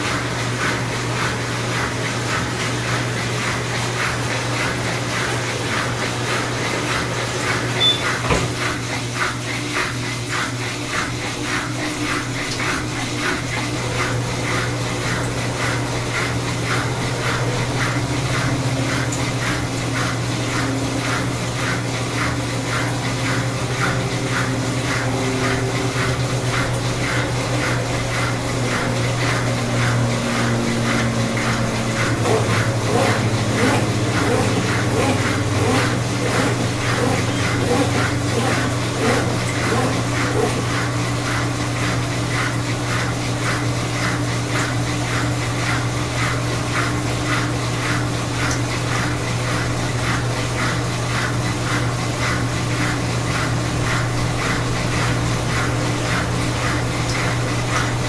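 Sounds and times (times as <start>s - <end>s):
washing machine spinning: 0.0s - 58.0s
knock: 8.2s - 8.5s.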